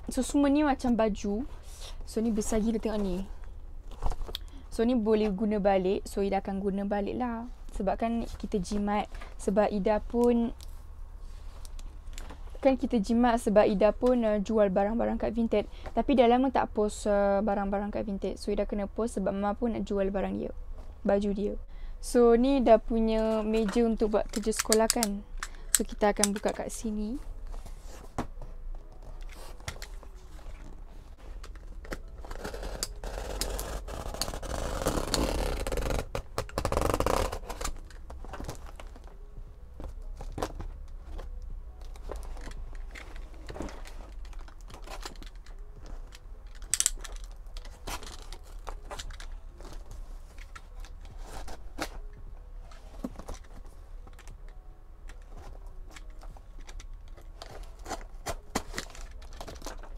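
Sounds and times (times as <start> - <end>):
tape and cardboard tearing: 31.8 - 38.9
box cutter scraping through tape: 32.2 - 37.8.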